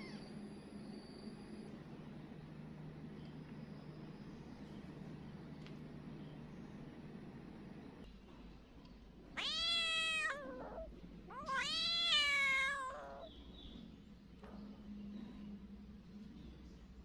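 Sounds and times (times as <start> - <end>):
cat meowing: 9.4 - 13.3.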